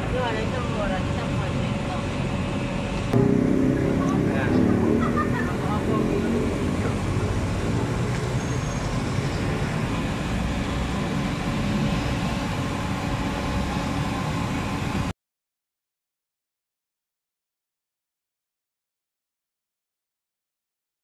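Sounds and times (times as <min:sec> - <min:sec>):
low rumble of traffic: 0:00.0 - 0:15.1.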